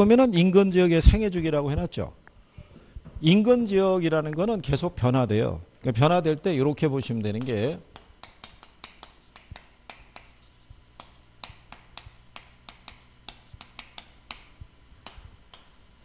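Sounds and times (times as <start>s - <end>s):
chalk tapping on chalkboard: 7.4s - 15.8s.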